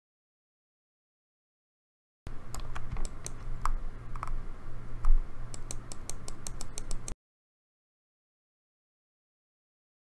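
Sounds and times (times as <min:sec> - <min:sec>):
faint low hum: 0:02.3 - 0:07.2
computer mouse and keyboard clicks: 0:02.5 - 0:04.4, 0:05.0 - 0:07.2.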